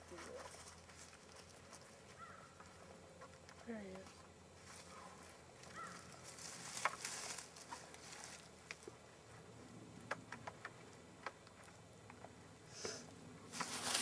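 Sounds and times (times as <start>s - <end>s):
faint rustling: 0.0s - 9.4s, 13.5s - 14.0s.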